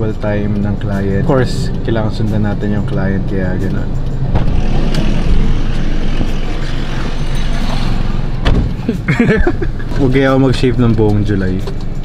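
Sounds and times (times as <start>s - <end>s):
steady background rumble: 0.0s - 12.0s
car door shutting: 4.3s - 5.0s, 8.4s - 9.0s.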